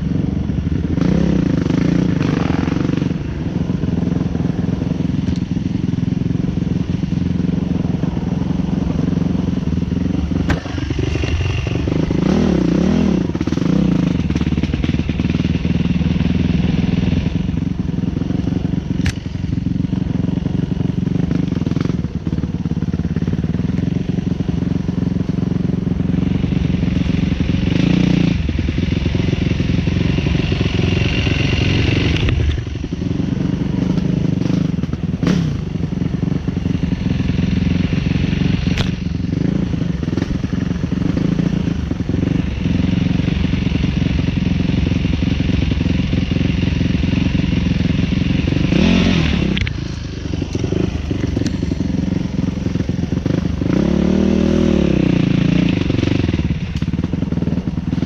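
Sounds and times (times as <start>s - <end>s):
dirt bike engine revving: 0.8s - 4.6s, 8.8s - 17.5s, 26.1s - 35.7s, 36.4s - 58.0s.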